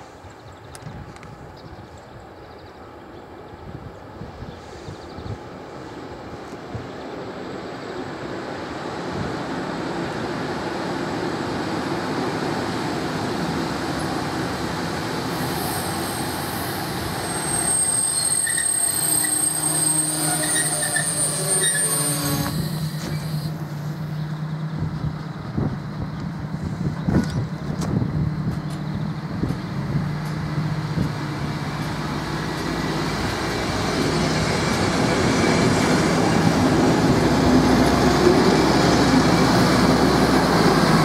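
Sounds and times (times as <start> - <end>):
railcar rumbling: 0.0 - 41.0
brakes squealing: 15.4 - 24.4
low diesel engine drone: 21.7 - 41.0.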